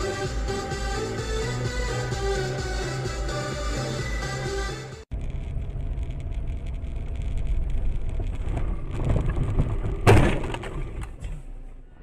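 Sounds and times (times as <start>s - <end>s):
car engine and road noise: 0.0s - 12.0s
vehicle collision bang: 8.5s - 11.4s.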